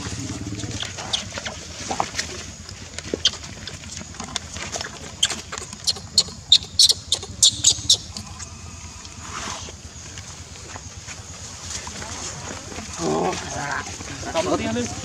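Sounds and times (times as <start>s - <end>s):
baby monkey squealing: 0.6s - 1.5s, 5.1s - 8.7s.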